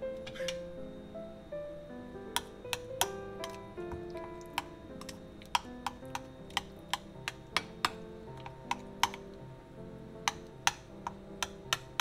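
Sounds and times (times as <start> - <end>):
soft background music: 0.0 - 12.0
metal spoon clinking on ceramic bowl: 4.5 - 9.3.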